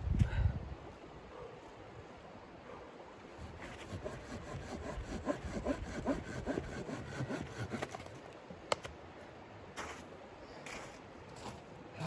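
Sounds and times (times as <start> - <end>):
hand saw cutting wood: 3.4 - 8.2.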